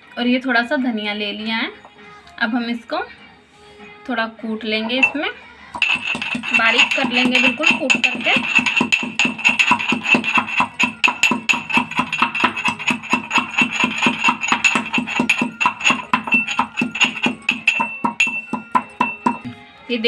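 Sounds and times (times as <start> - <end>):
metal pestle pounding in mortar: 4.8 - 19.5.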